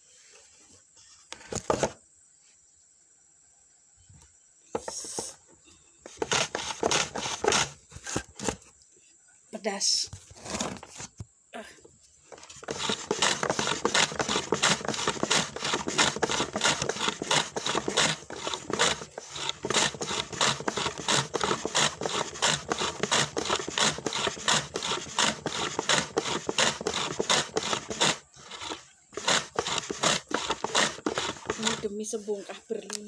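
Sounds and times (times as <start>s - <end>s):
hand slicer scraping: 6.1s - 8.7s, 12.3s - 32.0s.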